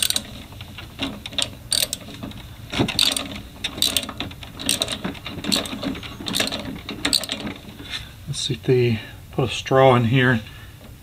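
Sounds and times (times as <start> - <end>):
socket ratchet clicking: 0.0 - 0.3, 1.3 - 2.1, 2.9 - 7.4.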